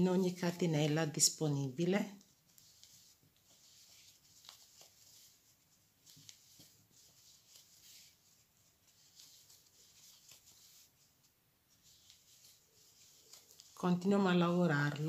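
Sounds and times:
yarn rustling: 1.9s - 15.0s.

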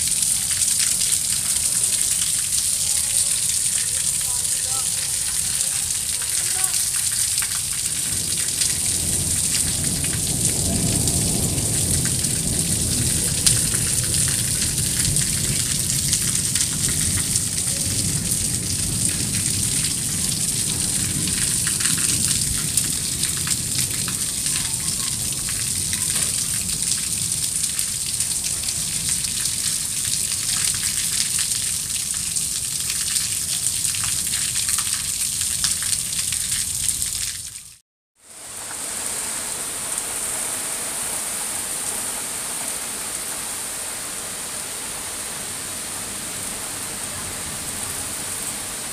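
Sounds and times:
heavy rain on roofs and water: 0.0s - 48.9s.

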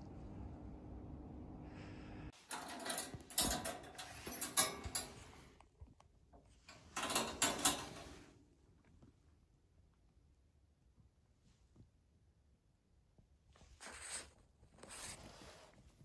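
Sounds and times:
cat scratching litter: 13.8s - 15.8s.

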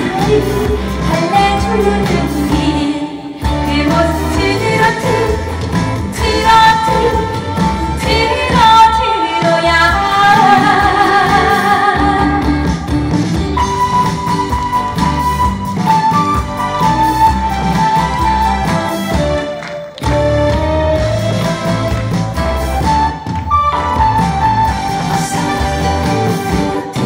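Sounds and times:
woman singing into microphone: 0.0s - 12.7s
loud backing music: 0.0s - 27.0s.

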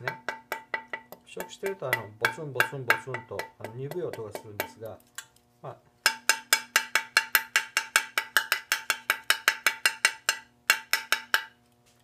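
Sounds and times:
metal tank tapped ringing: 0.0s - 4.9s.

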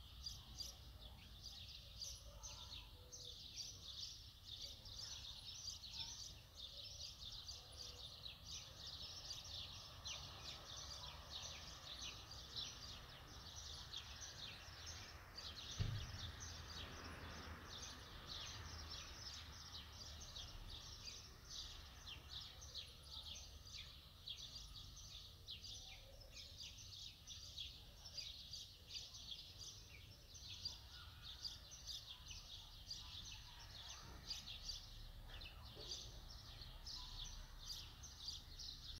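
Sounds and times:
small birds chirping: 0.0s - 38.9s
thump: 15.6s - 16.5s.

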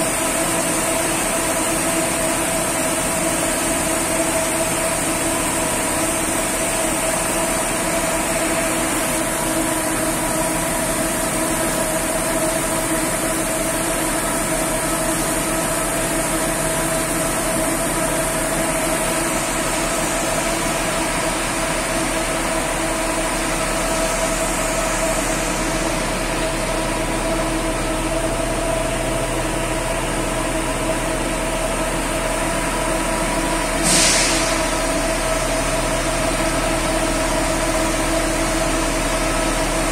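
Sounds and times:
automatic bus wash running: 0.0s - 39.9s
short hiss: 33.8s - 34.6s.

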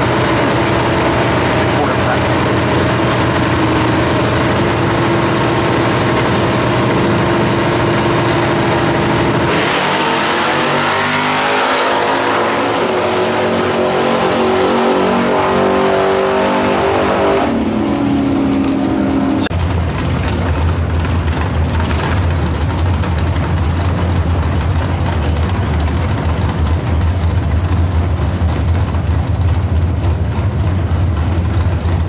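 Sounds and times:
cars accelerating hard: 0.0s - 20.8s
drag racing engines revving: 0.0s - 32.0s.

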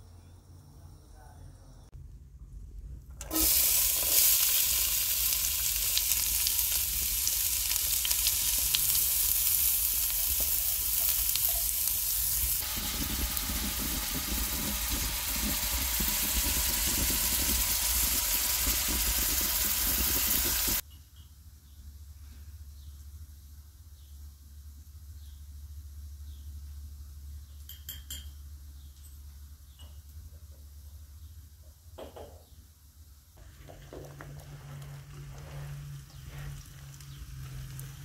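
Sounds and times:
onions sizzling in oil: 3.2s - 20.8s, 33.4s - 38.0s.

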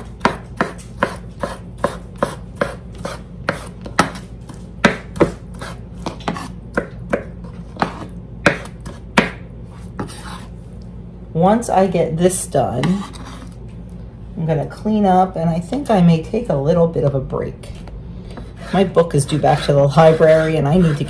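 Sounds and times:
knife chopping on wooden board: 0.0s - 4.2s, 4.8s - 9.4s.

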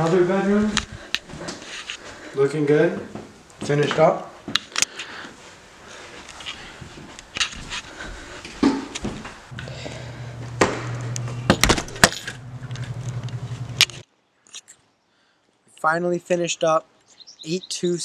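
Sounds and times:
handheld walking noise: 3.0s - 14.0s
steady low hum: 9.4s - 14.0s.

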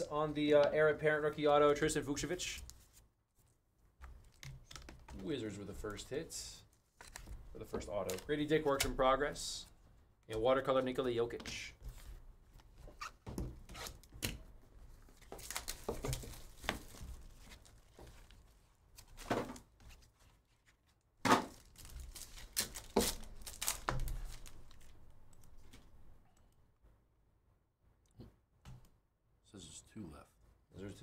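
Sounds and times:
plastic wrappers crinkling: 15.1s - 19.3s, 21.5s - 25.9s.

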